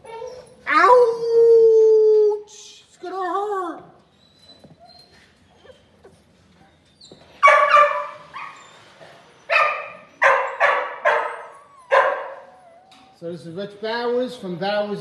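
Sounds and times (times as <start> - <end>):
dog barking: 7.4 - 8.6, 9.5 - 12.8.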